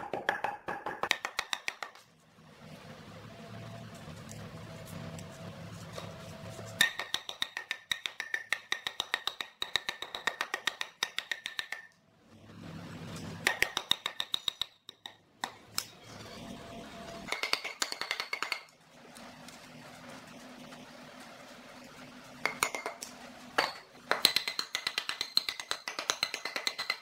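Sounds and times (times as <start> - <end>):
hatchet chopping log: 0.0 - 2.0.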